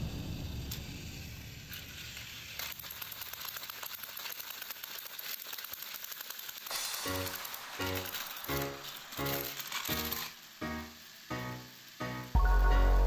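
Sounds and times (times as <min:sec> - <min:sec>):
toy train rattling on track: 0:00.7 - 0:12.4.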